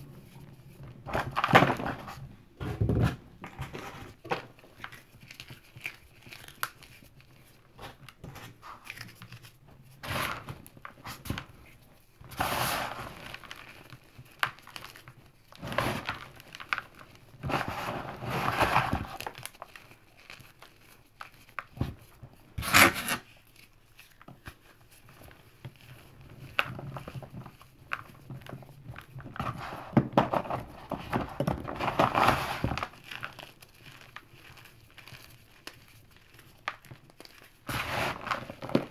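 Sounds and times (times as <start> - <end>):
hands crushing chalk: 3.1 - 38.9.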